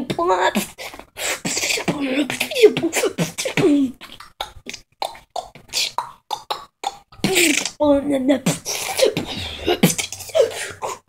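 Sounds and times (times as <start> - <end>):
person beatboxing: 5.4 - 7.8, 8.5 - 11.0.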